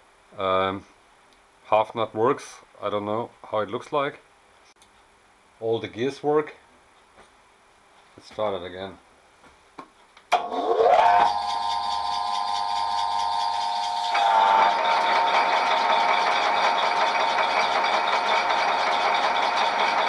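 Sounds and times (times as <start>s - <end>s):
lathe motor whine: 10.4s - 20.0s.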